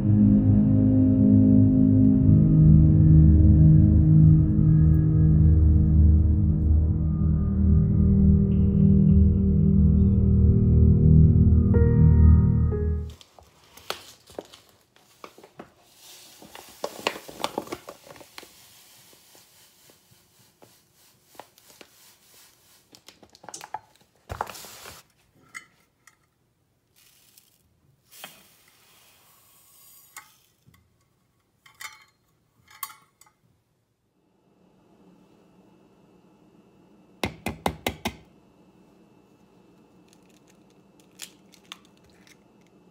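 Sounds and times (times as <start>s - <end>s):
paper bag rustling: 13.2s - 23.1s
sugar pouring into bowl: 18.5s - 23.0s, 26.9s - 27.6s.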